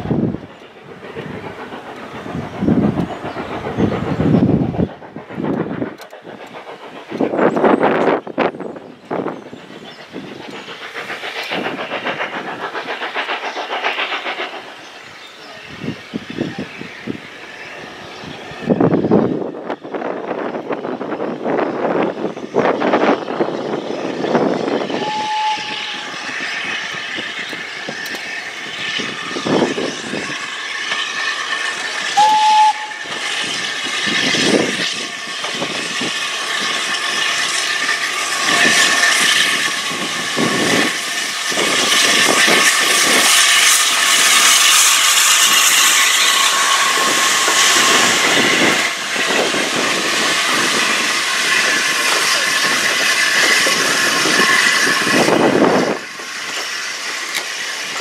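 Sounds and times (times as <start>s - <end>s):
locomotive exhaust beats: 0.0s - 17.4s
steam hissing: 0.0s - 58.0s
steam locomotive whistle: 24.9s - 26.4s, 32.1s - 33.4s.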